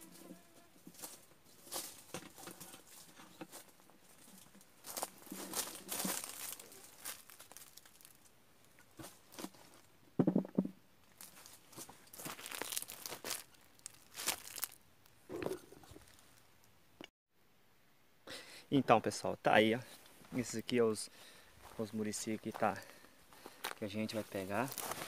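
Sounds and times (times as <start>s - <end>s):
dry leaves crunching underfoot: 0.8s - 8.2s, 11.1s - 14.8s, 23.6s - 25.0s.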